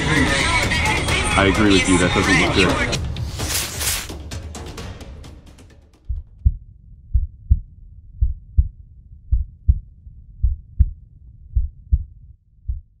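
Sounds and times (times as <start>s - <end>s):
heartbeat thumps: 6.0s - 13.0s.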